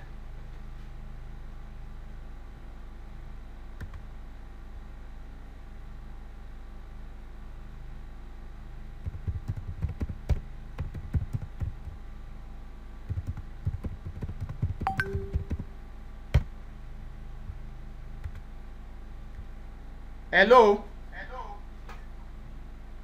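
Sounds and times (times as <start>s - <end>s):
typing on keyboard: 9.0s - 12.0s, 13.1s - 15.7s.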